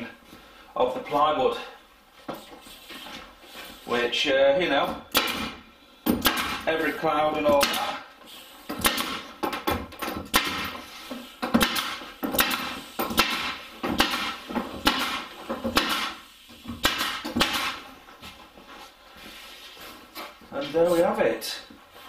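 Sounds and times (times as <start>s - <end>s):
pneumatic staple gun firing: 11.6s - 16.2s, 16.8s - 17.8s.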